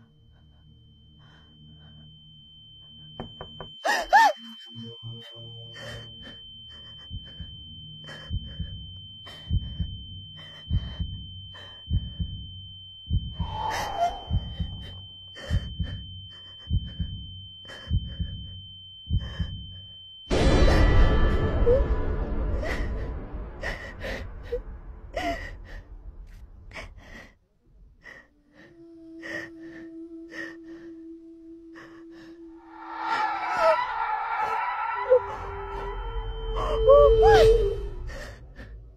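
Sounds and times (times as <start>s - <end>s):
steady low tone: 0.0s - 3.9s, 4.6s - 38.9s
heartbeat thumps: 8.3s - 12.5s, 13.1s - 17.3s, 17.9s - 19.8s
low drone: 13.2s - 18.6s, 19.2s - 27.3s, 28.0s - 38.9s
high-pitched tone: 13.4s - 15.2s, 31.7s - 38.2s.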